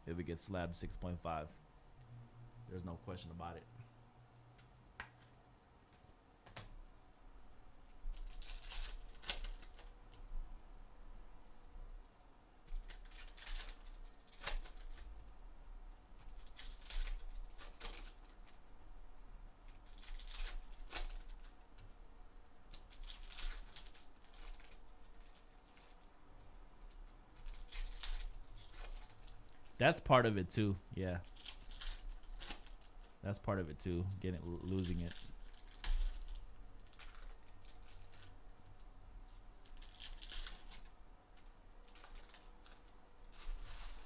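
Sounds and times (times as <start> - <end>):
foil wrappers crinkling and tearing: 7.9 - 9.9, 12.6 - 15.2, 16.2 - 18.7, 19.6 - 21.6, 22.7 - 26.1, 26.8 - 29.9, 30.6 - 33.2, 34.3 - 44.0.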